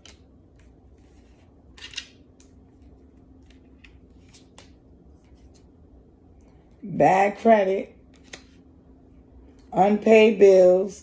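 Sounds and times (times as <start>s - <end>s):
cards clicking and rustling: 0.0s - 5.7s, 8.1s - 8.6s
faint steady hum: 0.0s - 11.0s.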